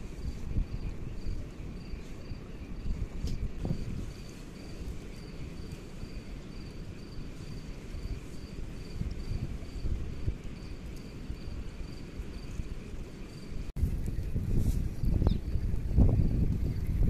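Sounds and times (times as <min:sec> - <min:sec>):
insect chirping: 0:00.1 - 0:13.7.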